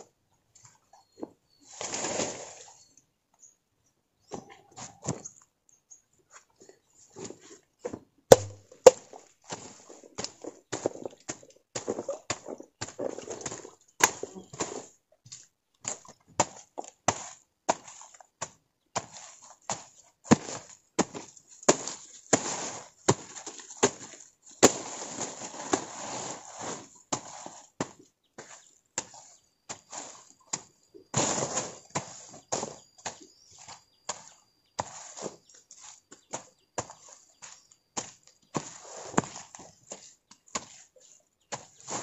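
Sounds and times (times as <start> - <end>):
machete chopping soil: 8.3 - 9.1.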